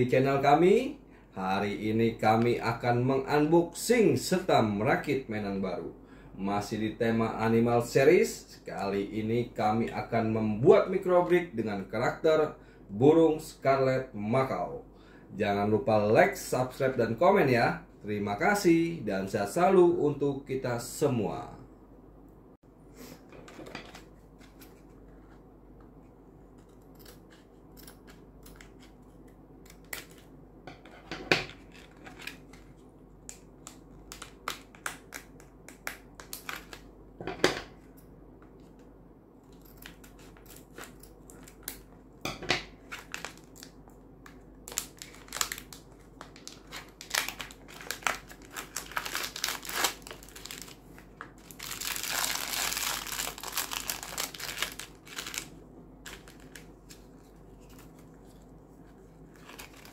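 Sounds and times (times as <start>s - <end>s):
scissors cutting plastic: 26.6s - 30.3s
plastic bags crinkling: 42.8s - 43.8s, 44.6s - 58.4s, 59.2s - 59.9s.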